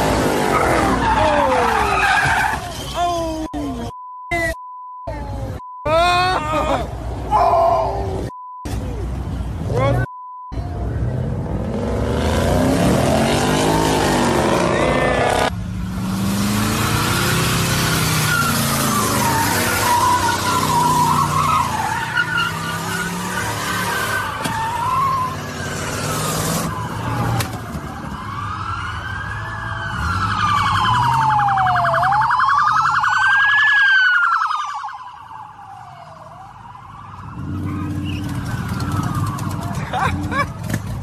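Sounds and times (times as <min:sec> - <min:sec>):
tyres squealing: 0:00.4 - 0:03.5
police siren wailing: 0:00.5 - 0:03.9, 0:17.2 - 0:41.0
car engines running: 0:37.0 - 0:41.0.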